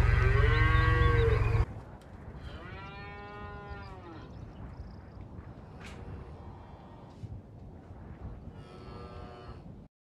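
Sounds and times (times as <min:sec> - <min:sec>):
cows mooing: 0:00.0 - 0:01.6
heavy low rumble: 0:00.0 - 0:01.9.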